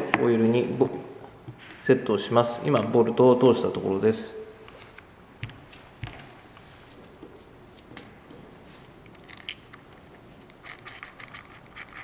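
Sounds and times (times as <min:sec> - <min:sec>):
metallic clicks and clinks: 0:09.1 - 0:12.0.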